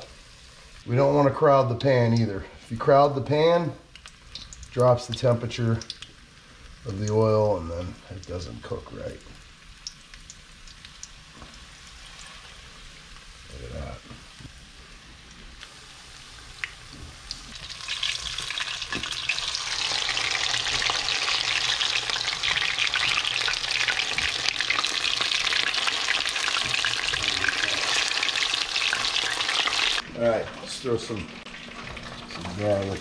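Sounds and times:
fish frying in hot oil: 3.9 - 13.9, 15.7 - 30.0.

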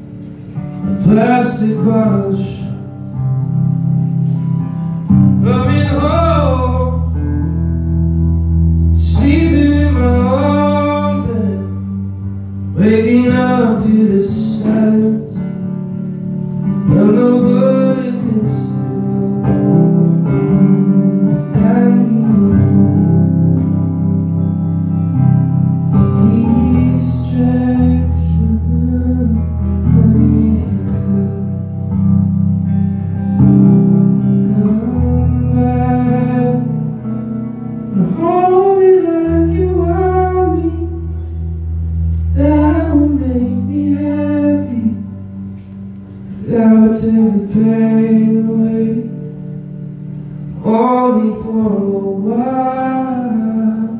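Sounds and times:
electric guitar chords: 0.0 - 53.9
man singing: 0.9 - 3.1, 5.4 - 7.5, 8.9 - 15.6, 16.8 - 20.2, 21.4 - 23.6, 26.0 - 31.9, 34.3 - 37.1, 37.9 - 41.2, 42.2 - 45.3, 46.3 - 49.4, 50.6 - 53.9.

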